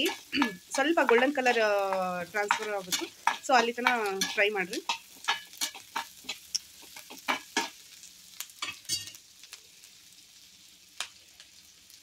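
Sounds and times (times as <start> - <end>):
utensil scraping a pan: 0.0 - 1.7, 2.3 - 7.8
onions sizzling in hot oil: 0.0 - 12.0.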